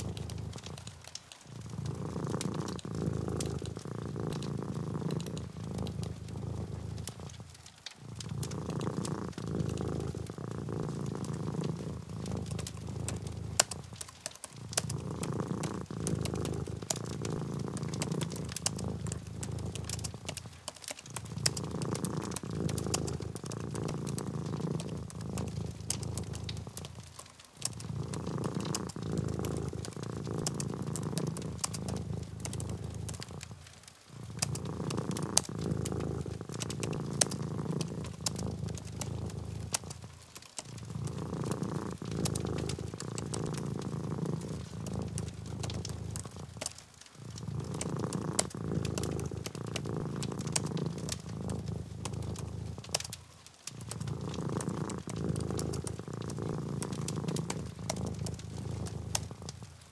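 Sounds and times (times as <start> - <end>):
cat purring: 0.0 - 59.9.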